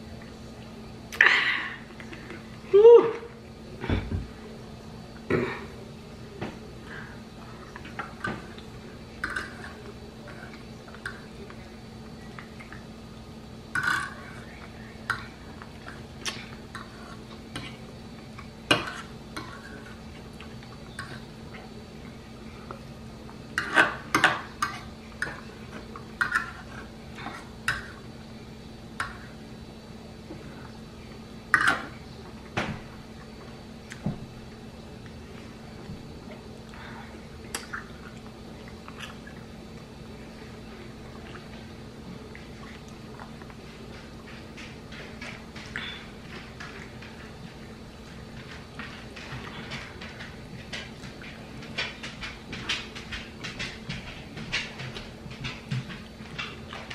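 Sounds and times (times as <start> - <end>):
chewing and lip-smacking: 37.5 - 39.5.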